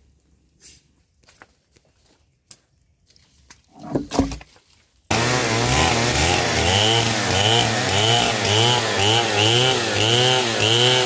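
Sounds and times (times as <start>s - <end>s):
knocks and rustles: 3.5s - 4.8s
chainsaw running: 5.1s - 11.0s.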